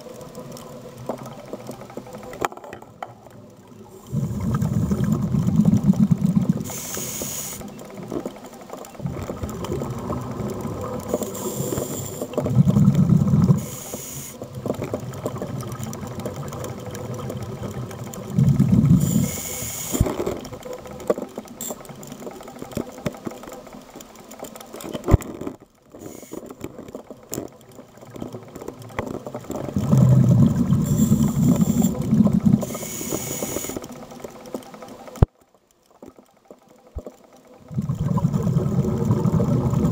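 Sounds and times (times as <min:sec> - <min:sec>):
exhaled bubbles rumbling: 0:03.2 - 0:06.8, 0:08.9 - 0:13.7, 0:14.4 - 0:21.1, 0:26.6 - 0:33.0, 0:37.5 - 0:39.9
diver inhaling through regulator: 0:06.6 - 0:07.6, 0:18.4 - 0:20.2.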